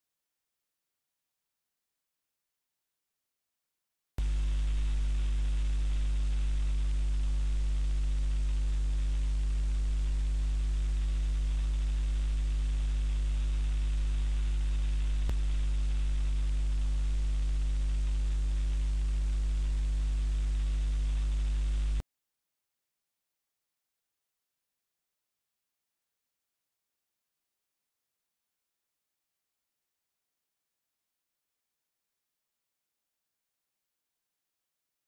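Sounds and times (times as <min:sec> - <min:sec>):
electrical hum: 0:04.2 - 0:22.0
static hiss: 0:04.2 - 0:22.0.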